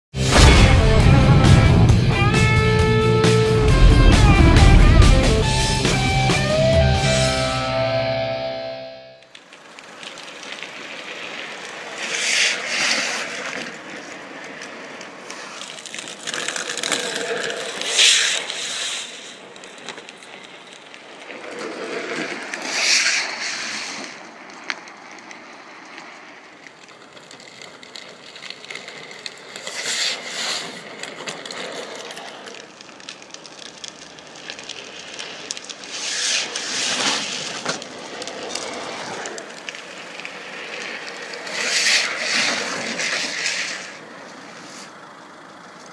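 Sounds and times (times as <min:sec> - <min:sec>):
plastic wheels scraping on asphalt: 0:09.3 - 0:45.9.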